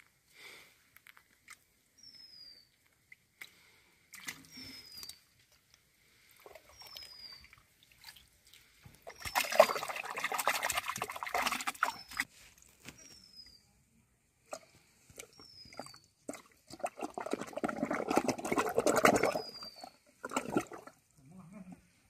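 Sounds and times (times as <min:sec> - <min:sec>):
hands splashing in muddy water: 0:06.4 - 0:12.2, 0:15.2 - 0:21.0.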